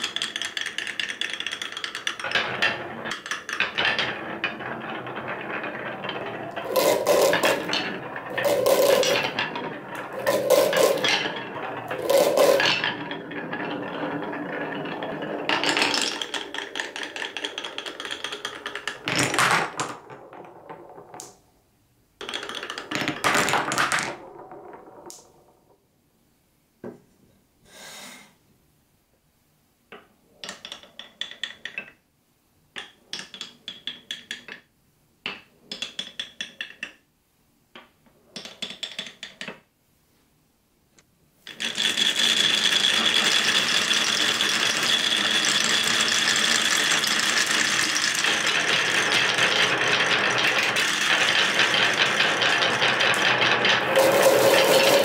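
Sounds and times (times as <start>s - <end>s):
dense rattle of marbles: 0.0s - 21.4s, 22.2s - 25.7s, 41.5s - 55.0s
marbles rolling in wooden channels: 0.0s - 21.6s, 22.2s - 25.8s, 29.9s - 32.0s, 32.7s - 37.0s, 37.8s - 39.7s, 41.4s - 55.0s
marbles clicking together: 6.1s - 13.1s, 41.5s - 55.0s.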